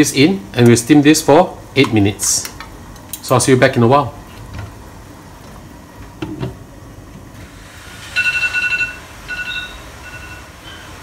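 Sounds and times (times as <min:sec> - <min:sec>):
kitchen timer beeping: 0:08.1 - 0:11.0.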